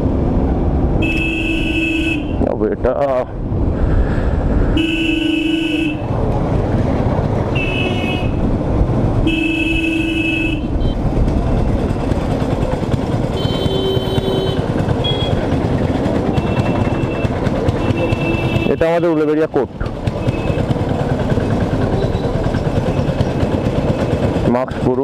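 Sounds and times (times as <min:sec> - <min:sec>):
vehicle horns honking: 0:01.0 - 0:02.4, 0:04.7 - 0:06.1, 0:07.5 - 0:08.5, 0:09.2 - 0:11.0, 0:13.3 - 0:15.5, 0:16.3 - 0:19.2, 0:20.2 - 0:20.7, 0:21.9 - 0:23.0
wind rumble on microphone: 0:06.0 - 0:09.3
motorcycle engine running: 0:06.5 - 0:25.0.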